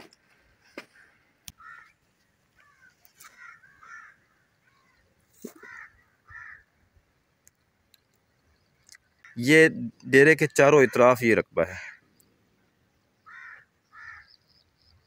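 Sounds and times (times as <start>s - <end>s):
crows cawing: 0.8s - 2.0s, 2.6s - 6.7s, 10.7s - 12.1s, 13.2s - 14.5s.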